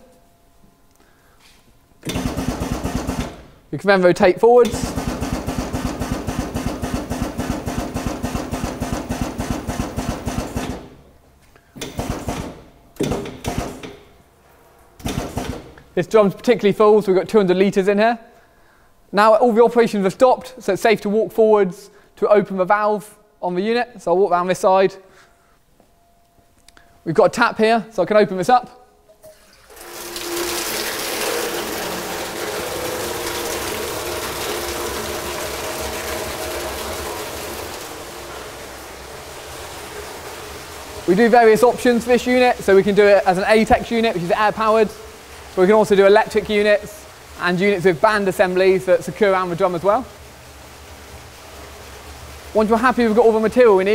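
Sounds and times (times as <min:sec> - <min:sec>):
liquid pouring into metal vessel: 0:29.2 - 0:41.1
drum tipper motor humming and knocking: 0:29.8 - 0:43.2.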